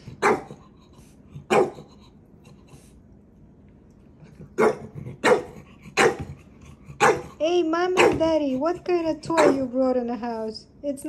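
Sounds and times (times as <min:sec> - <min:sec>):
small dog barking: 0:00.2 - 0:00.6, 0:01.5 - 0:01.9, 0:04.6 - 0:06.3, 0:07.0 - 0:07.3, 0:08.0 - 0:08.2, 0:09.3 - 0:09.6.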